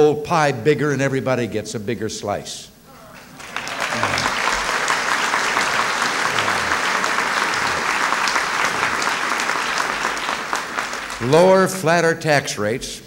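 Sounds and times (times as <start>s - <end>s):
audience applauding: 3.0s - 11.7s.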